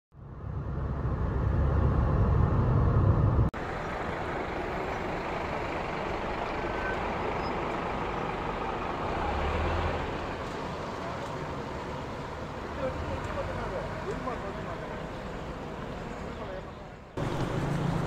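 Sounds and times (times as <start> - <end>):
city street traffic: 0.1 - 18.0
road rumble inside a car: 0.3 - 9.2
bus passing close by: 0.3 - 18.0.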